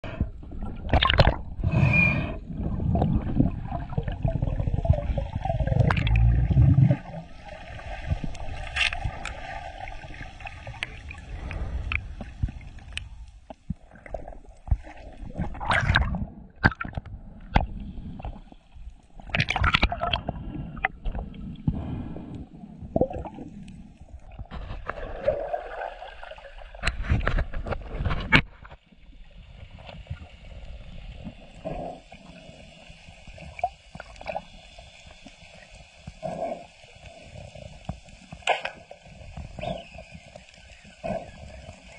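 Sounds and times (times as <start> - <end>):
muffled underwater gurgling: 0.0 - 18.5, 29.5 - 34.5, 35.5 - 41.9
bubbly bursts and clicks: 0.5 - 1.8, 2.5 - 17.7, 19.1 - 21.4.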